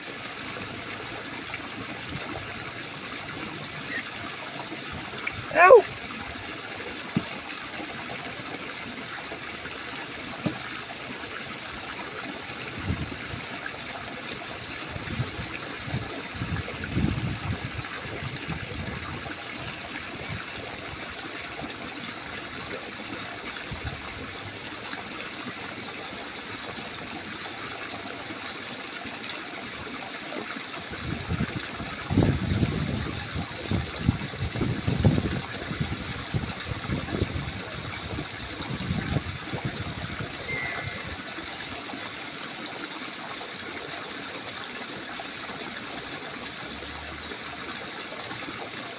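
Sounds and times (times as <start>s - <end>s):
running water rushing: 0.0s - 48.9s.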